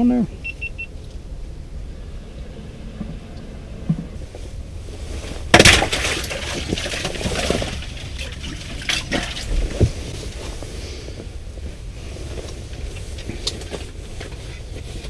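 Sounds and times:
ice crashing: 5.0s - 10.6s
ice crackling and clinking: 5.5s - 10.4s.

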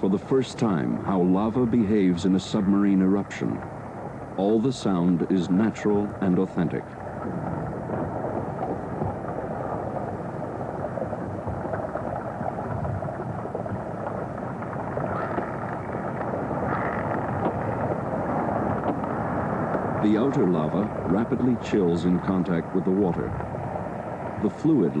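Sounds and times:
dense underwater crackling: 0.0s - 25.0s
deep rumble: 4.6s - 23.6s.

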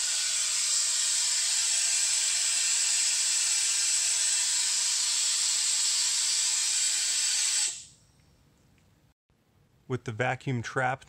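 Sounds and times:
compressed air hissing: 0.0s - 8.0s.

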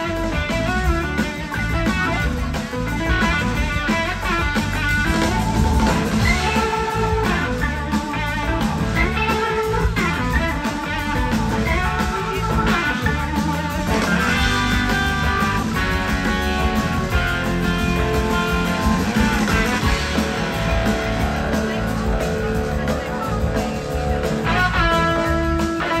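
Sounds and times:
electric guitar line: 0.0s - 26.0s
live blues-rock band playing: 0.0s - 26.0s.

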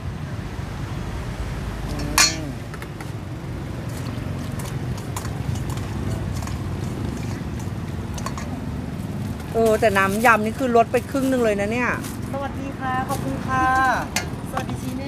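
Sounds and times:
spoon clinking against bowls: 1.9s - 2.7s, 4.0s - 8.6s.

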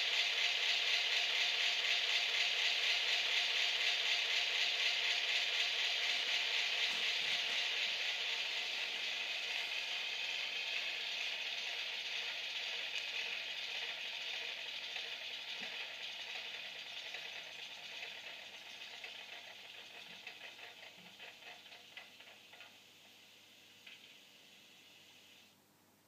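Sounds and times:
model diesel engine sound clattering: 0.0s - 9.3s.

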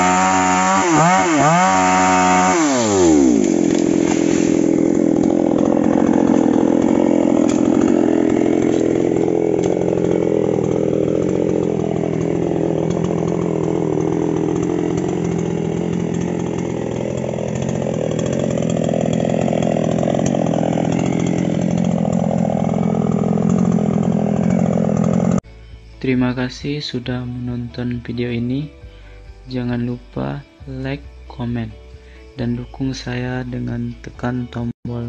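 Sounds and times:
two-stroke chainsaw engine running: 0.0s - 25.4s.

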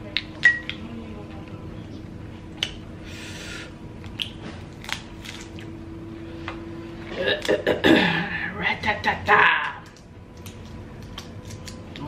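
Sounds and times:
crab shells cracking: 4.0s - 5.6s, 9.6s - 12.0s.

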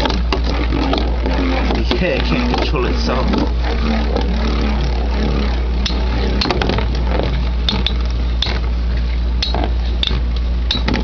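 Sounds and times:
spinning tops grinding whir: 0.0s - 11.0s.

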